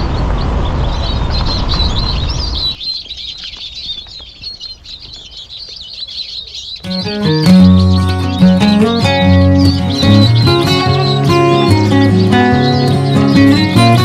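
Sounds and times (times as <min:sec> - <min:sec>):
loud low rushing noise: 0:00.0 - 0:02.8
small birds chirping: 0:00.0 - 0:14.0.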